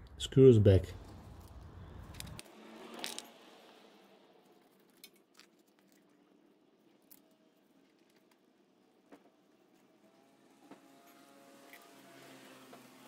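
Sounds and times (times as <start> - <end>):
small bolts clicking and rustling: 1.0 - 3.4, 4.4 - 8.5.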